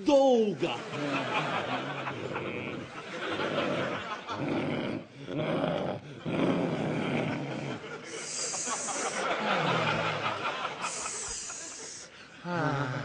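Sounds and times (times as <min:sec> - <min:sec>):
man growling like a dog: 0:01.7 - 0:07.8, 0:12.4 - 0:13.0
breathy hissing voice: 0:07.7 - 0:09.8, 0:10.5 - 0:13.0.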